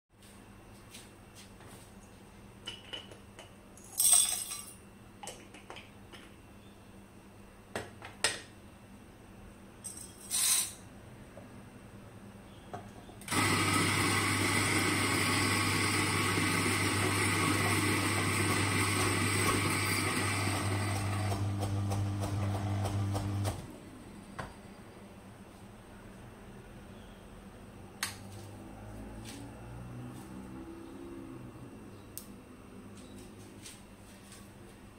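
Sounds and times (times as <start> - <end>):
coffee grinder motor grinding: 13.3 - 23.6.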